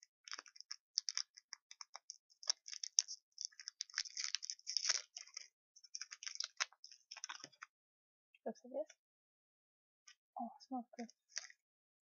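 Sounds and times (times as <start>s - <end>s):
candy wrapper crinkling: 0.0s - 7.7s, 11.0s - 11.5s.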